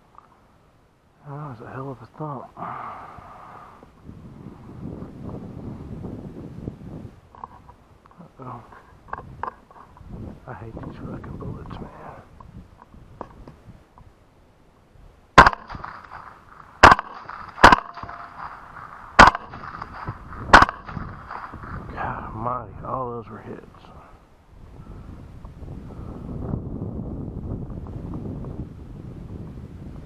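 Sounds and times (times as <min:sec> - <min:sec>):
wind buffeting microphone: 0:02.7 - 0:14.2, 0:14.9 - 0:30.0
suppressed rifle shots: 0:15.4 - 0:21.5.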